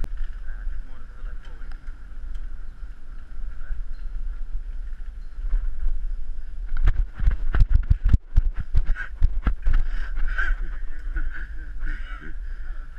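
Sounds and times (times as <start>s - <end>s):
wind rumble: 0.0s - 12.9s.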